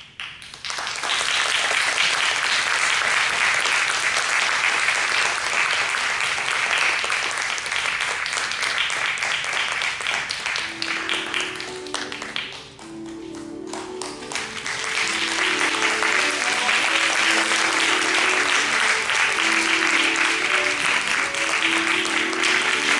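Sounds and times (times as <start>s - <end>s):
audience applauding: 0.2s - 22.9s
sustained music notes: 10.7s - 22.9s.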